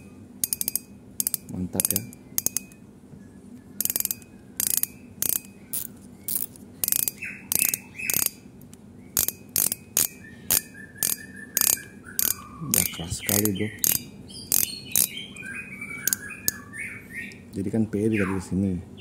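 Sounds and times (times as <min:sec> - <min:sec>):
fishing reel clicker ratcheting: 0:00.0 - 0:02.8, 0:03.8 - 0:15.1.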